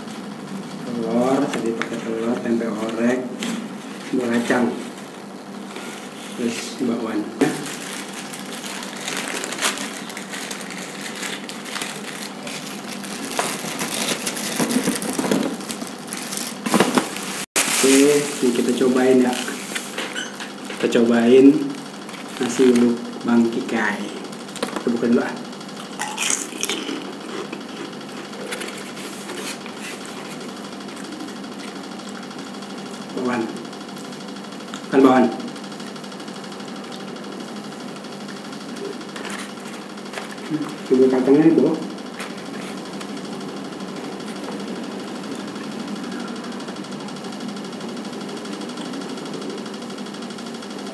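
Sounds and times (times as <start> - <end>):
mechanical hum: 0.0 - 50.9
food handling: 7.4 - 18.6
plastic bag crinkling: 7.6 - 20.0.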